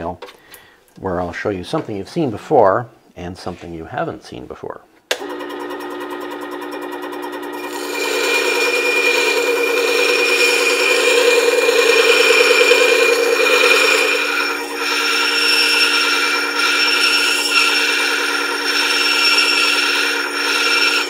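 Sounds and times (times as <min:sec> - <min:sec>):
motor whine: 0:07.5 - 0:21.0
metal grinding hiss: 0:07.7 - 0:21.0.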